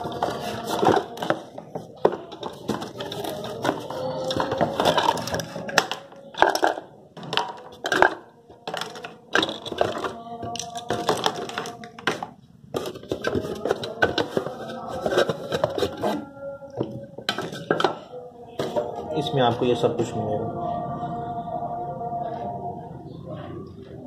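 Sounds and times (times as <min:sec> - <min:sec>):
cardboard packaging rustling: 0:00.0 - 0:06.1, 0:10.8 - 0:16.3
plastic parts clattering: 0:00.0 - 0:19.0.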